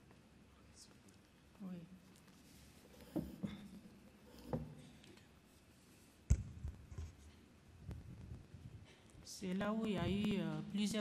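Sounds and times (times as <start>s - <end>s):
faint knocks: 3.0s - 3.7s.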